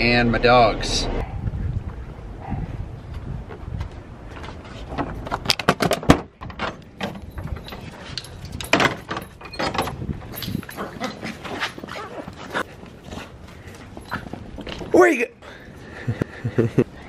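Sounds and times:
door clicks and knocks: 5.0 - 7.6, 8.6 - 10.0.

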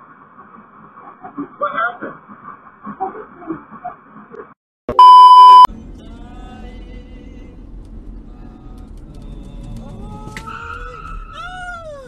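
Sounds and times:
test-tone beep: 4.9 - 5.7
car engine and road rumble: 5.0 - 12.0.

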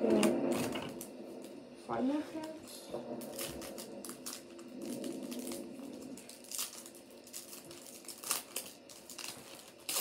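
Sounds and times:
faint steady hum: 0.0 - 10.0
foil wrapper crinkling: 3.2 - 10.0.

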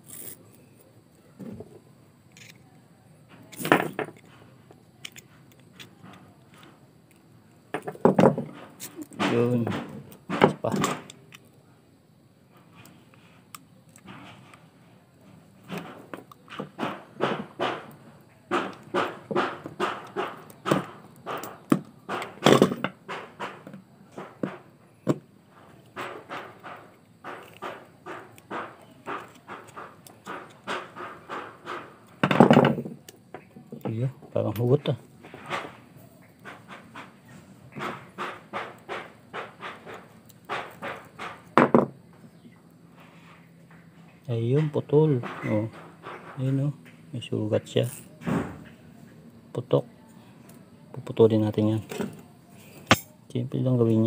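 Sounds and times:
scraping knock: 7.7 - 11.1, 15.7 - 33.8, 35.2 - 47.0
metal hose and rod clinking: 52.8 - 53.2.

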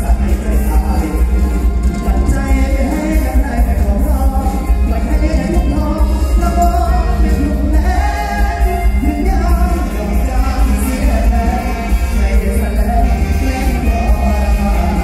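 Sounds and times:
live band with heavy bass: 0.0 - 15.0
person singing: 0.0 - 15.0.

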